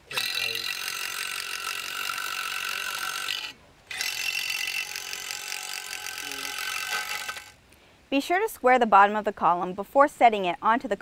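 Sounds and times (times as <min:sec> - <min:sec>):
cordless drill drilling into concrete: 0:00.1 - 0:07.6.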